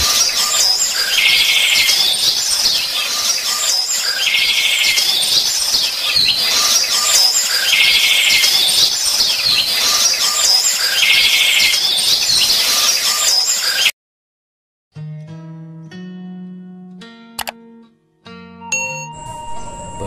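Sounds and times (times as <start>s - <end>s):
birdsong chirps and calls: 0.0s - 13.9s.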